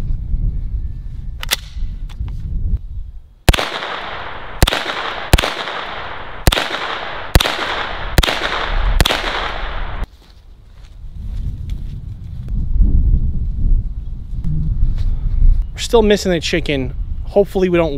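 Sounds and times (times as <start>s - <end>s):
rifle shots with echo: 3.5s - 10.1s.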